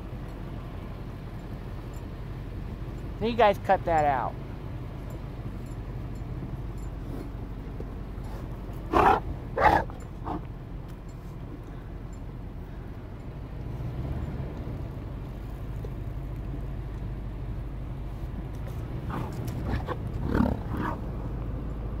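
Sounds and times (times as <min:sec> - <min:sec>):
bison grunting: 0:08.2 - 0:10.5, 0:18.7 - 0:21.1.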